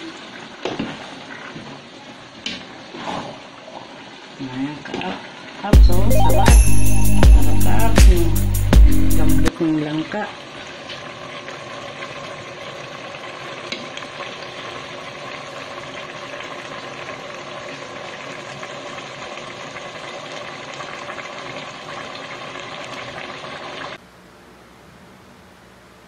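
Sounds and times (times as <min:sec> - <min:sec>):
food simmering and sizzling in pot: 0:00.0 - 0:05.7, 0:10.0 - 0:24.0.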